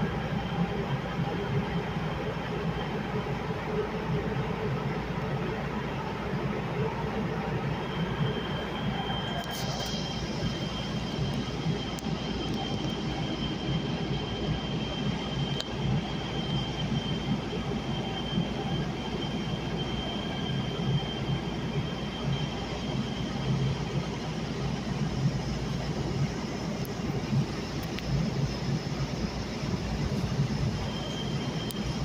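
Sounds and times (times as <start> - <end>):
thin high whine: 6.6 - 32.0
wheels rumbling on rail: 22.9 - 32.0.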